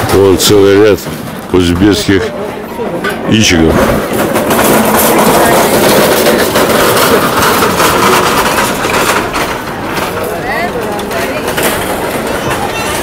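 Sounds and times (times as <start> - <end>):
metal hand cart rattling: 3.0 - 13.0.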